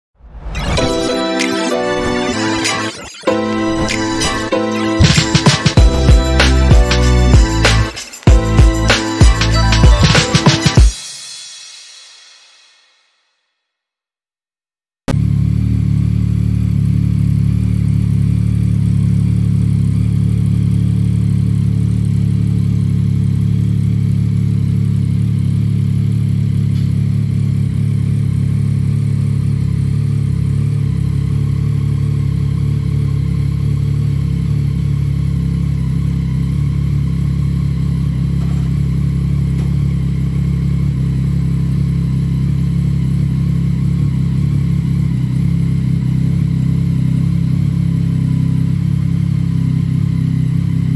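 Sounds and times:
motorcycle engine idling: 15.1s - 50.9s.

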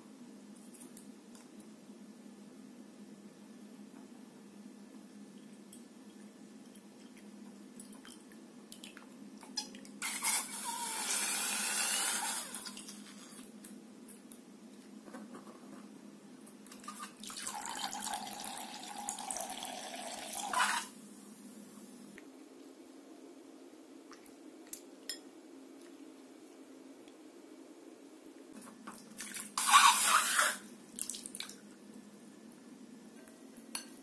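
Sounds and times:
liquid pouring into glass bowl: 17.2s - 20.6s.

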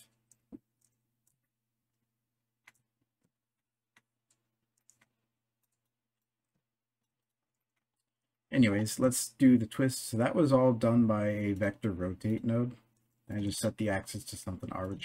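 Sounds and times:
computer mouse clicks: 0.2s - 1.5s, 3.9s - 5.9s.

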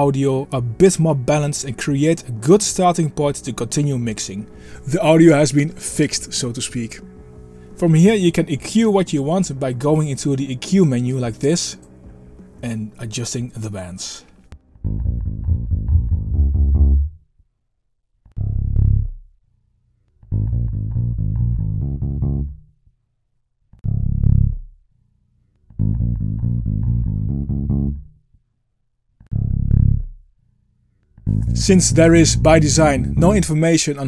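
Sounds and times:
bass guitar notes: 0.0s - 13.1s, 14.5s - 17.2s, 18.3s - 19.3s, 20.2s - 22.7s, 23.8s - 24.8s, 25.7s - 28.2s, 29.3s - 30.2s, 31.2s - 34.0s.

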